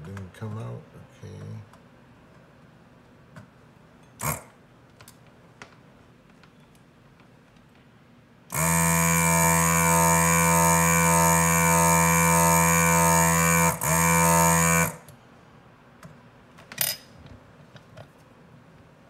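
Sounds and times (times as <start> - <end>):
vacuum pump buzzing: 4.2 - 4.6, 8.5 - 15.2.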